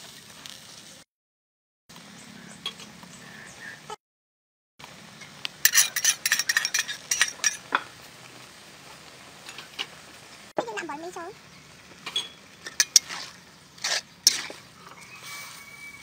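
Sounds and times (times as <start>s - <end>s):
metal utensils clinking on wok: 5.6s - 7.8s, 12.0s - 13.1s.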